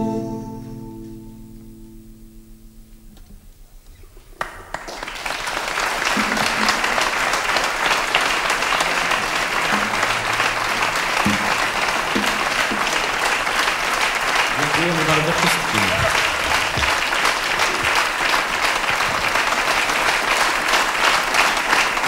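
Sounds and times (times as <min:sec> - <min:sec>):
audience applause: 0:04.4 - 0:22.0.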